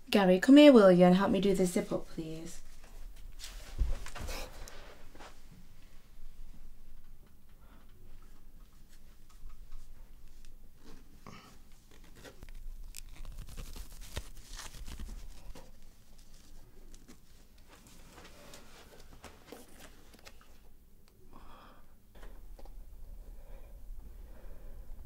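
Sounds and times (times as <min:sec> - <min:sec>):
fabric rustling: 0:02.6 - 0:05.6, 0:08.6 - 0:20.2.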